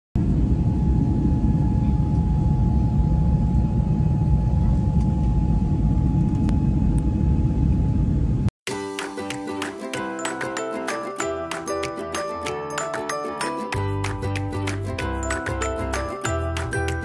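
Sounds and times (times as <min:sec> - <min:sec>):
airliner engine rumble: 0:00.2 - 0:08.5.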